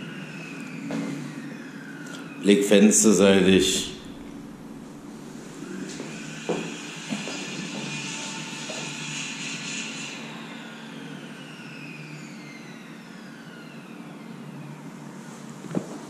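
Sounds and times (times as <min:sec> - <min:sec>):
power tool whine spinning down: 0:00.0 - 0:15.7.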